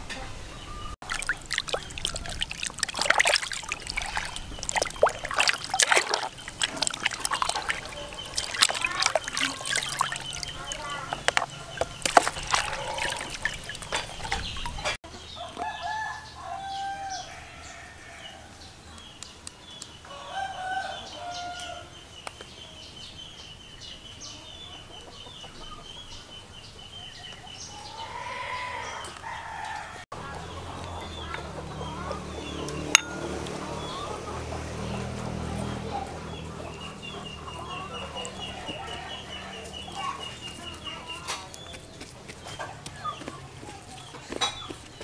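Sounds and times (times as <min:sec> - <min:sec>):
water splashing in basin: 0:01.0 - 0:15.0, 0:30.4 - 0:45.0
rooster crowing: 0:15.4 - 0:18.6, 0:20.0 - 0:21.9, 0:27.9 - 0:30.0.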